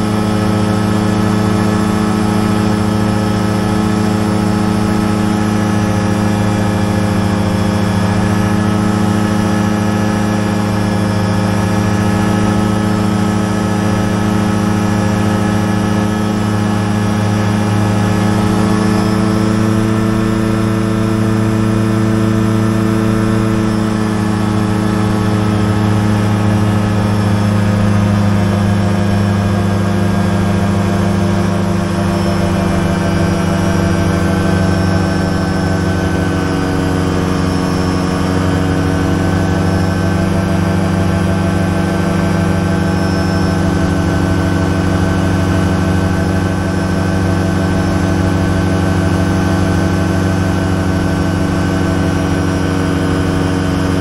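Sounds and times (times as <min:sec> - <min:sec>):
aircraft engine and propeller droning: 0:00.0 - 0:54.0.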